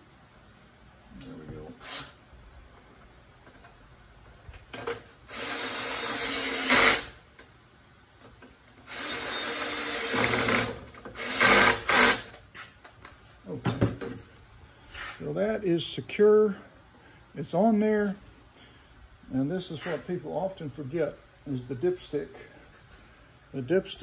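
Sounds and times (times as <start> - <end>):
power drill driving screws: 5.3 - 7.2, 8.9 - 12.3.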